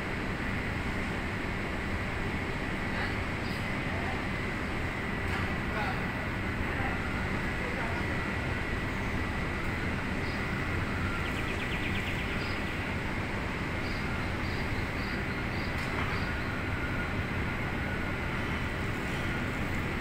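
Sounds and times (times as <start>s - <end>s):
outdoor background rumble: 0.0s - 20.0s
small birds chirping: 10.1s - 16.7s.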